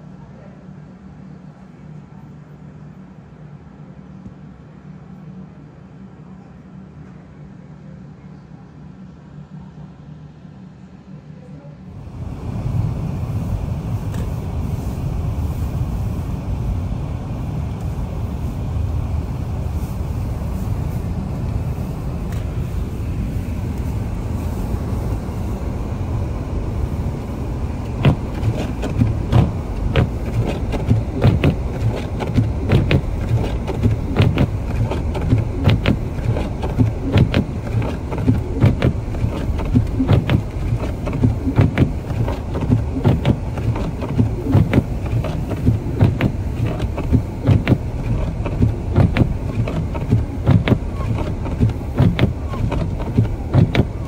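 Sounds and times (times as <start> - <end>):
car road and engine rumble: 0.0 - 54.0
sharp clicks and knocks: 27.8 - 54.0.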